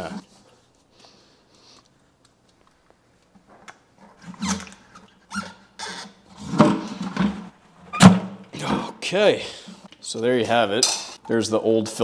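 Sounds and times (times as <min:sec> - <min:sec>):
filter membrane squeaking: 0:04.2 - 0:06.6.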